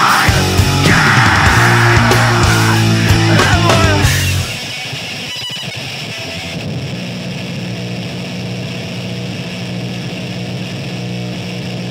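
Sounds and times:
crowd cheering: 0.0s - 4.6s
amplifier drone: 0.0s - 11.9s.

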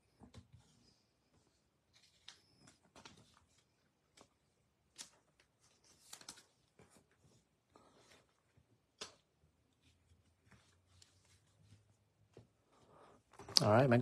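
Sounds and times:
trading cards rustling and tapping: 7.8s - 12.6s.

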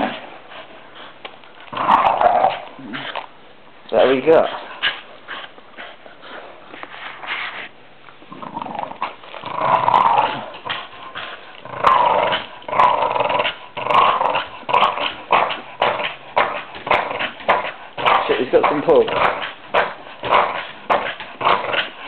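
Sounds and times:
dog growling in play: 0.0s - 3.3s, 8.2s - 22.0s.

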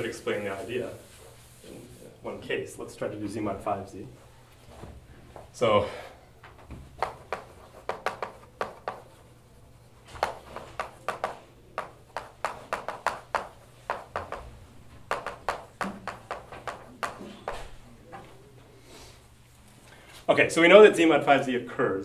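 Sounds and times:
chalk tapping on blackboard: 6.9s - 9.2s, 10.1s - 17.7s.

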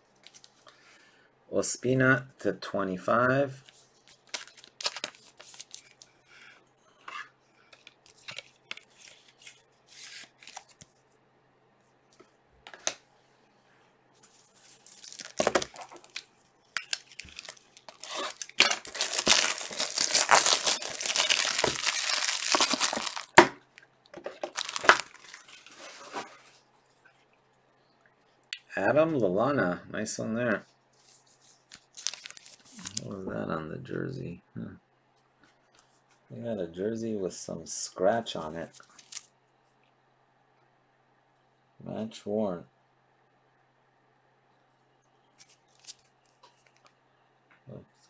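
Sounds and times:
wrapper tearing and crinkling: 4.1s - 6.0s, 14.6s - 23.4s, 24.3s - 26.2s, 31.9s - 33.1s, 38.8s - 39.3s, 45.4s - 46.1s.

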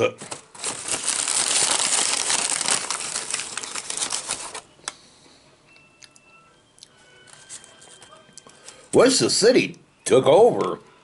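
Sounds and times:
paper bag crinkling: 0.2s - 4.7s.

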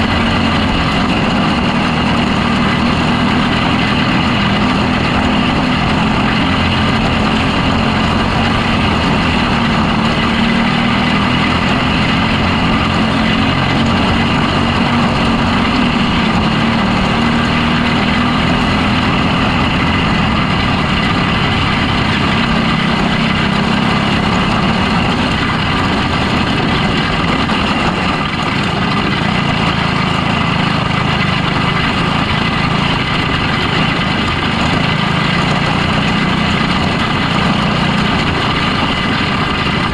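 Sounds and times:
race car engine running hard: 0.0s - 39.9s.

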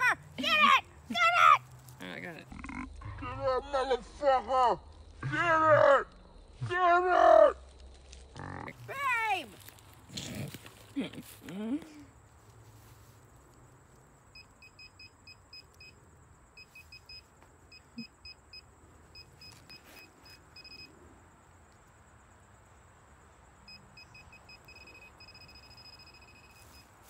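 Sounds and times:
metal detector beeping: 14.4s - 16.0s, 16.6s - 20.9s, 23.7s - 27.0s.

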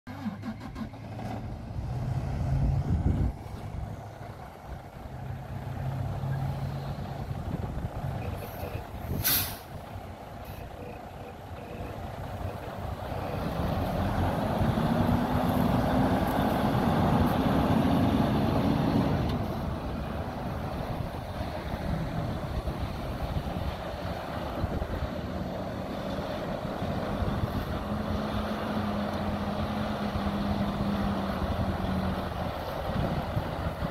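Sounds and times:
diesel engine running: 0.1s - 33.9s
air brakes hissing: 9.1s - 9.8s.

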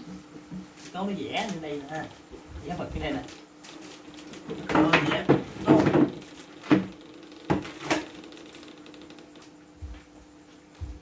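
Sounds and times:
plastic furniture scuffling: 0.8s - 8.2s
sharp plastic knocks: 4.2s - 9.5s.

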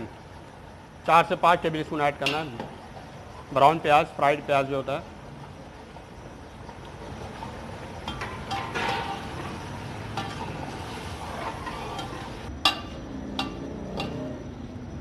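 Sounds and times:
metal spatula scraping pot: 7.2s - 14.3s
spatula clinking against pot: 11.6s - 14.3s.

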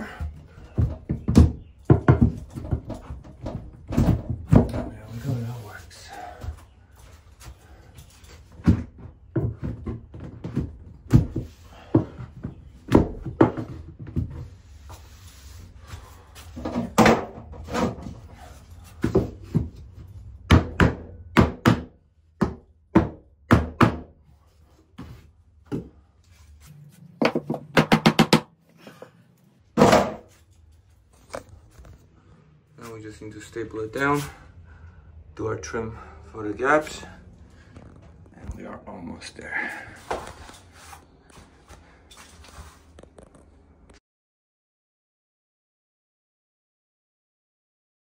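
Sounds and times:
wooden knocks and thunks: 0.2s - 5.1s, 8.5s - 14.6s, 16.6s - 18.3s, 19.0s - 24.1s, 27.2s - 28.5s, 29.8s - 30.3s.

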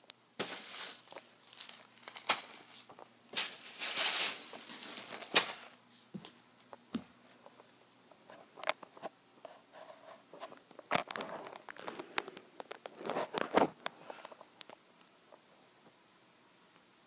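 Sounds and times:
crinkly rustling: 0.4s - 5.8s, 7.4s - 15.5s.

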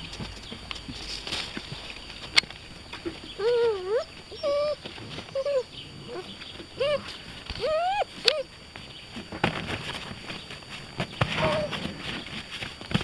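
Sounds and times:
puppies yelping and whining: 3.0s - 8.6s, 11.3s - 12.2s.

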